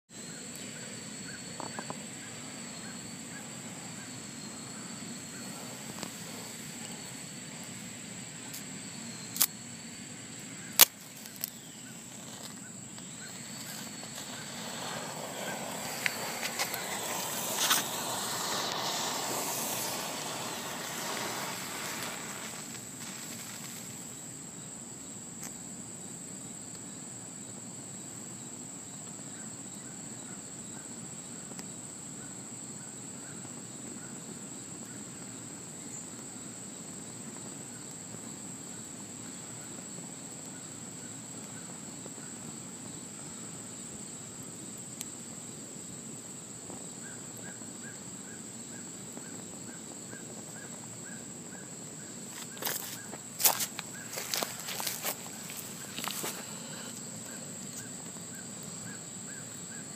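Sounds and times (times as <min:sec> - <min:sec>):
high insect trill: 0:00.1 - 0:59.9
matches flaring with hiss and crackles: 0:00.4 - 0:24.5, 0:49.1 - 0:59.7.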